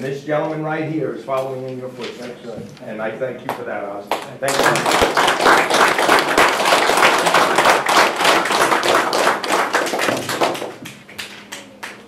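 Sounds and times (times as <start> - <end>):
small crowd applauding: 4.1 - 12.0.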